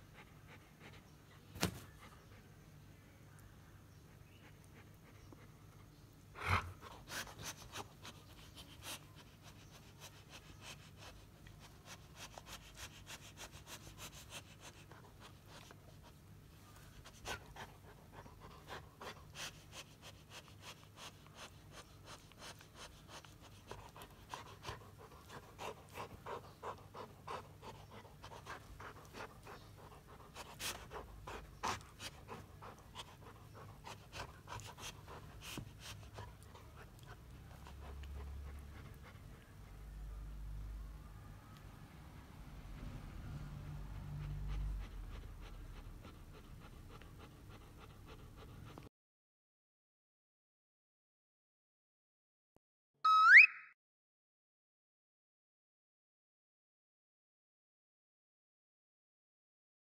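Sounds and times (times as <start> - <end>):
dog panting: 0.0 - 2.5, 4.1 - 40.0, 43.6 - 48.9.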